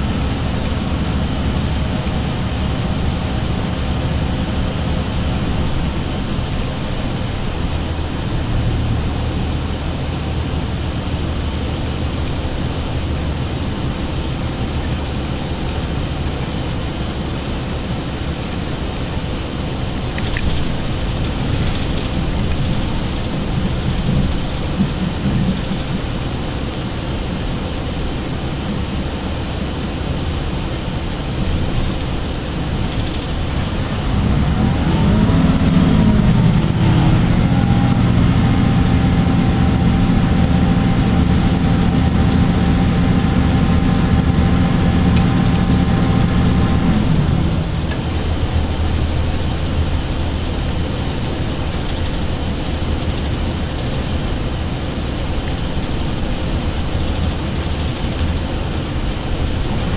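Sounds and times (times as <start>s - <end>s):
diesel engine droning: 0.0s - 59.9s
train rumbling on track: 0.0s - 59.9s.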